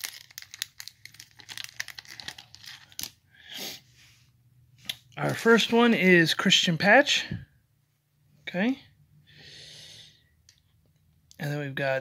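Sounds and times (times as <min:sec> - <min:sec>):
foil wrapper crinkling and tearing: 0:00.0 - 0:03.2.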